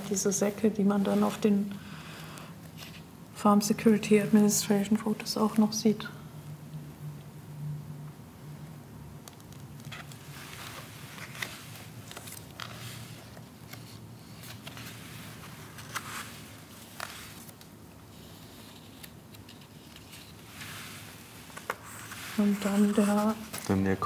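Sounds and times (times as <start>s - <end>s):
book pages turning: 2.2s - 3.1s, 9.2s - 24.0s.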